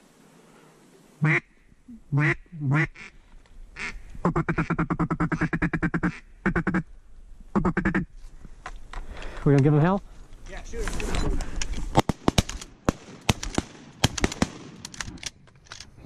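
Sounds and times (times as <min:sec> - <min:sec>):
duck quacking: 0:01.2 - 0:01.5, 0:02.1 - 0:03.1, 0:03.8 - 0:06.9, 0:07.5 - 0:08.1.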